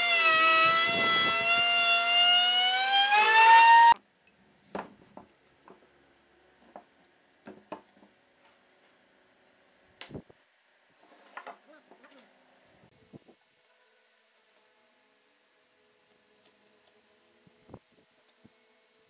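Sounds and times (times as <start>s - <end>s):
power tool motor whine: 0.0s - 4.0s.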